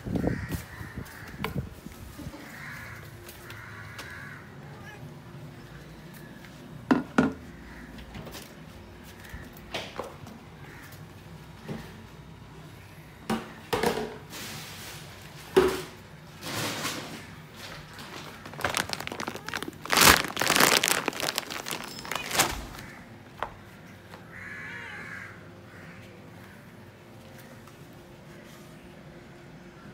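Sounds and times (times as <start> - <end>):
plastic food bag crinkling: 17.5 - 23.0.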